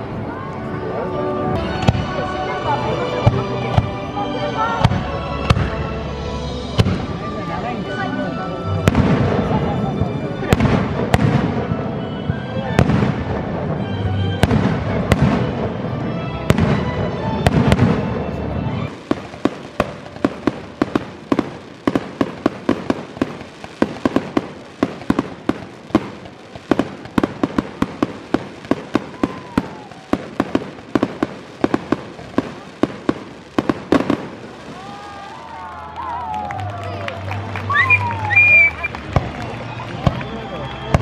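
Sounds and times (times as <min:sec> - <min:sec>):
fireworks crackling pops: 0:00.0 - 0:04.2, 0:06.7 - 0:07.6, 0:08.8 - 0:41.0
fireworks booming: 0:01.6 - 0:04.1, 0:04.7 - 0:07.7, 0:08.8 - 0:35.6.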